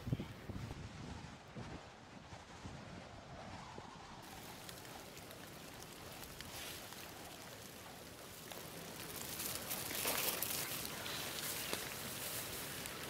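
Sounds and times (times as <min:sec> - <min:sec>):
leaves and twigs rustling: 0:04.2 - 0:13.0.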